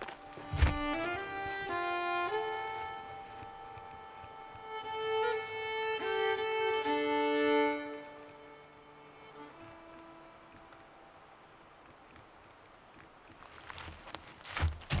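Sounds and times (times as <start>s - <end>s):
slow violin melody: 0.0s - 11.6s.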